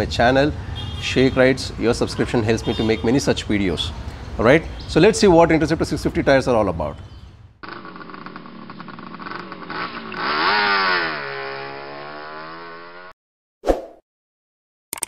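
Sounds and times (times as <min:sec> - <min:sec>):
motorcycle engine revving and idling: 0:07.6 - 0:13.1.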